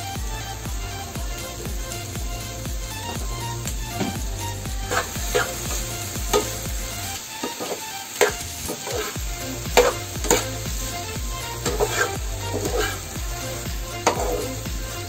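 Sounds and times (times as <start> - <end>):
background music with steady beat: 0.0 - 15.0
food sizzling: 0.0 - 15.0
spatula scraping frying pan: 4.9 - 15.0.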